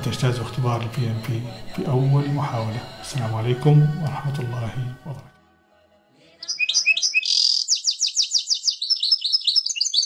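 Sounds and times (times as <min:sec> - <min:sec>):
bird trilling high chirps: 0:06.4 - 0:10.0.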